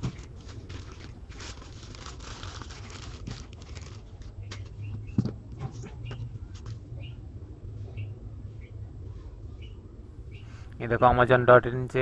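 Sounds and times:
plastic bag crinkling: 0:00.4 - 0:04.3.

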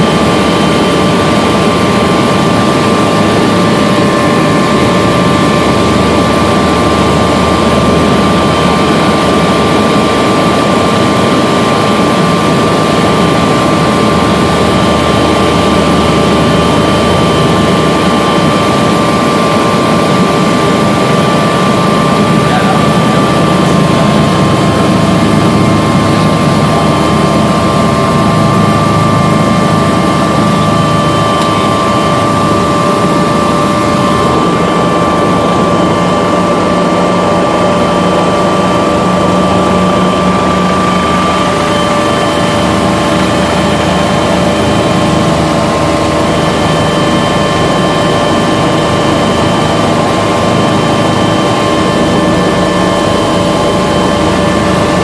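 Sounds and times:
helicopter engine and rotors: 0:00.0 - 0:55.0.

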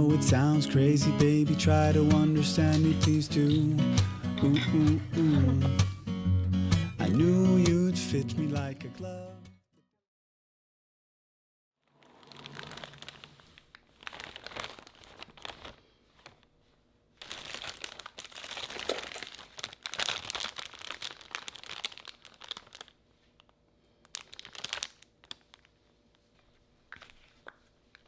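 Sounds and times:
plastic bag crinkling: 0:11.9 - 0:16.6, 0:17.2 - 0:26.3.

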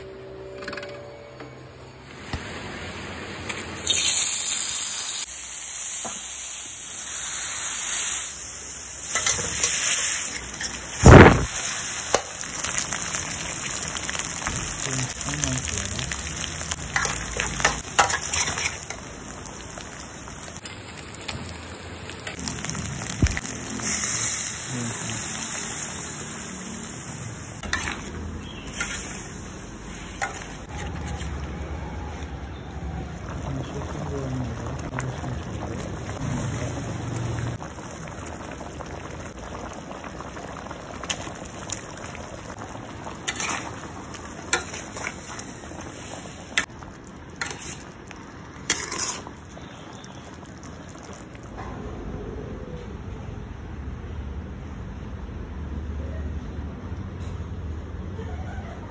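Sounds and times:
paste frying in a wok: 0:03.7 - 0:31.8, 0:32.4 - 0:51.5
metal spatula scraping wok: 0:17.0 - 0:19.0, 0:27.6 - 0:31.4, 0:43.2 - 0:43.8, 0:47.4 - 0:47.9, 0:48.7 - 0:49.4
broth bubbling: 0:31.8 - 0:51.5.

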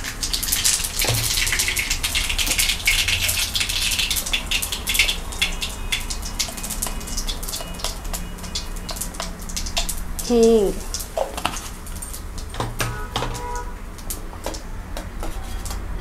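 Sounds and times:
seeds spluttering in hot oil: 0:00.0 - 0:16.0.

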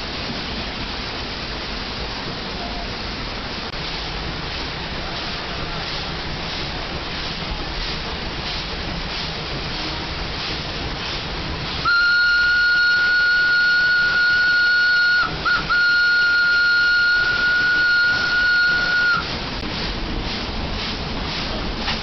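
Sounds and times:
steam whistle blowing: 0:11.8 - 0:19.3.

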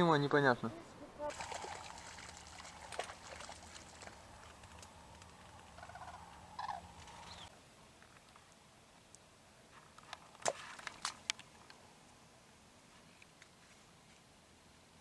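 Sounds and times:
cranes bugling: 0:01.1 - 0:07.5.

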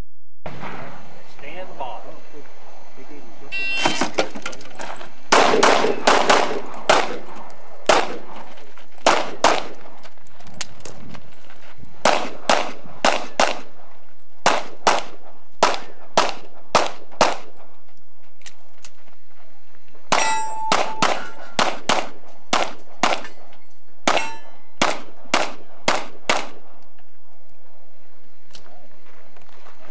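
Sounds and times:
pistol shots: 0:05.3 - 0:10.0, 0:12.0 - 0:13.8, 0:14.4 - 0:17.7, 0:20.1 - 0:26.8
steel targets ringing: 0:20.1 - 0:21.6, 0:24.1 - 0:24.8.

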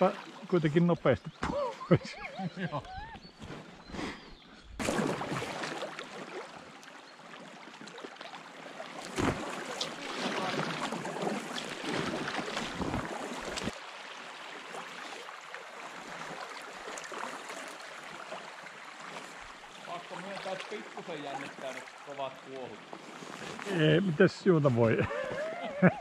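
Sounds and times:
water splashes and knocks: 0:04.8 - 0:23.7.

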